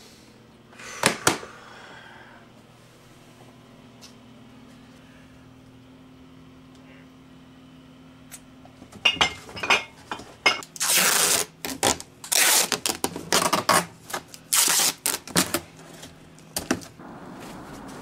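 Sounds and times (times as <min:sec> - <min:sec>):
packing tape ripping off roll: 0:10.7 - 0:15.7.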